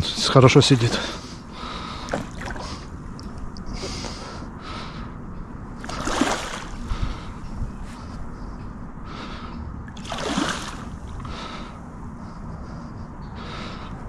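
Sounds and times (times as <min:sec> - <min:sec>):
water splashing from fish: 0:02.0 - 0:02.8, 0:05.8 - 0:06.8, 0:10.0 - 0:10.9.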